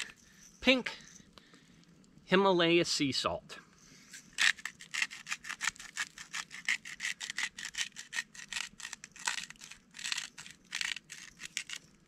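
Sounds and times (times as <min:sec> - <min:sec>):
salt grinder grinding crystals: 0:04.4 - 0:12.0.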